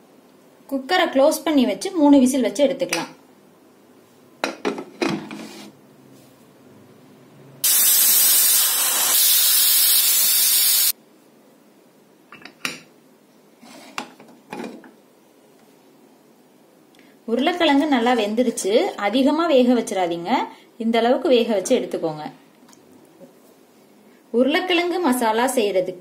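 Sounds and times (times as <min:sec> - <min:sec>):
pressure cooker steam hiss: 0:07.6 - 0:11.0.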